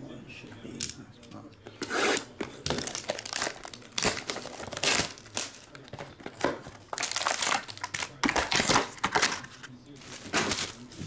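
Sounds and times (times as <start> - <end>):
wrapping and cardboard tearing: 1.8 - 11.0
crinkling and rustling: 2.3 - 11.0.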